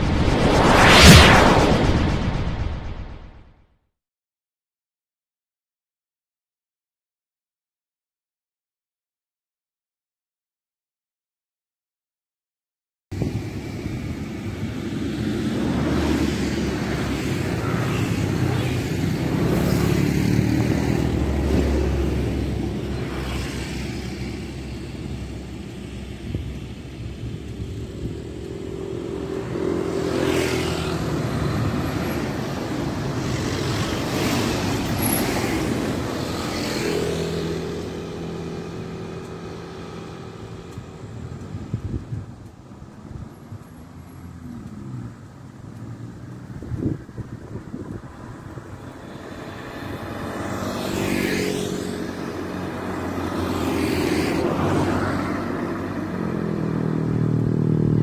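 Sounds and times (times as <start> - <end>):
vehicles passing: 13.2 - 58.0.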